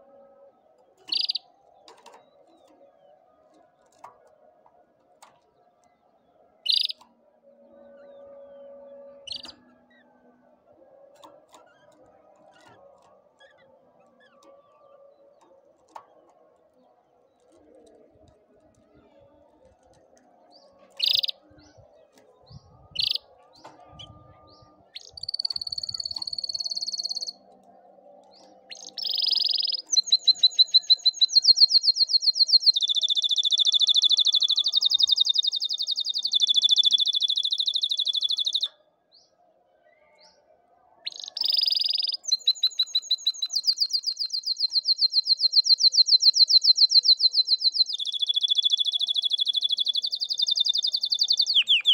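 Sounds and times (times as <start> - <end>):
canary singing trills: 1.0 - 2.8, 6.6 - 7.1, 7.8 - 10.4, 20.6 - 38.7, 41.0 - 51.9.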